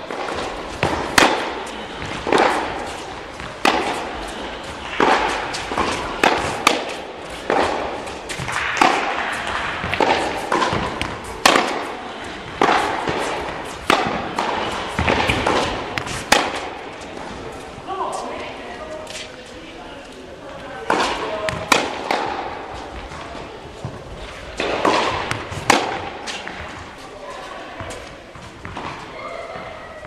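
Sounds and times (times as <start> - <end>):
ball bouncing on hard court: 0.0 - 16.8, 20.9 - 26.8, 27.8 - 29.8
tennis ball struck by rackets: 0.0 - 17.2, 20.9 - 26.9.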